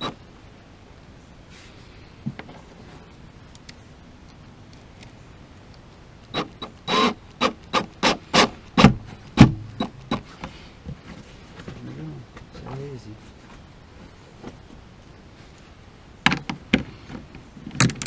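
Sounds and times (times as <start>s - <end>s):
heavy bumps: 7.6s - 13.0s.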